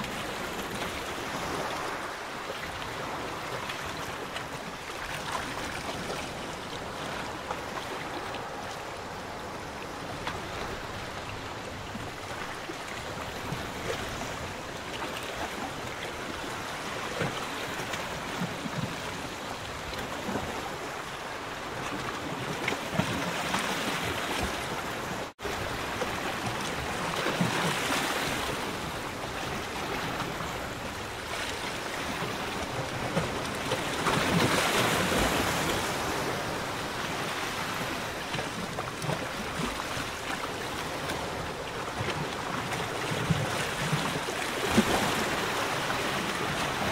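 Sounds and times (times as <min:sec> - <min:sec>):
small waves lapping: 0:00.0 - 0:46.9.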